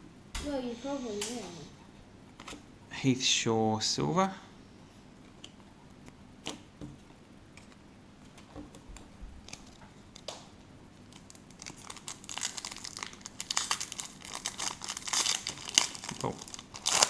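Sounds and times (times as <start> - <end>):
foil wrapper crinkling and tearing: 11.1 - 17.0.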